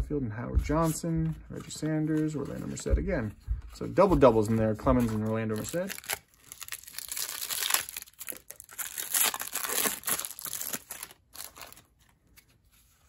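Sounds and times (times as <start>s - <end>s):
cellophane wrapper crinkling and tearing: 5.0s - 12.4s.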